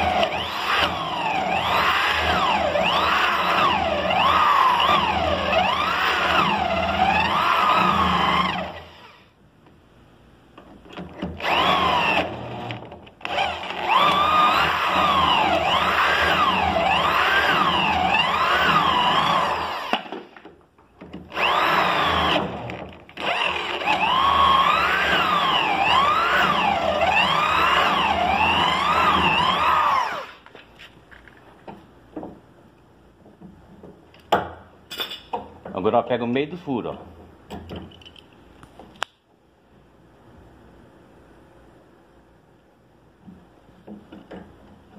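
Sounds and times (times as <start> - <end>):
electric drill boring: 0.0 - 9.2, 11.4 - 20.2, 21.3 - 30.4.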